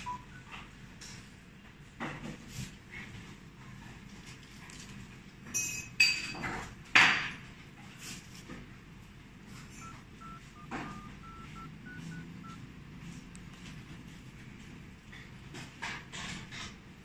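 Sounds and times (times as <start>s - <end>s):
phone keypad beeps: 0.0s - 0.6s, 9.6s - 12.6s.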